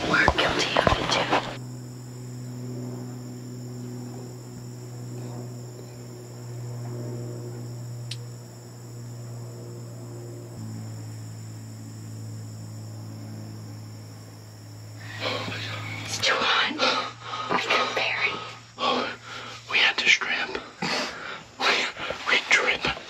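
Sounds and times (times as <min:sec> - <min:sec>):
low steady hum: 0:00.0 - 0:22.7
insects singing: 0:00.0 - 0:23.0
small click: 0:08.1 - 0:08.3.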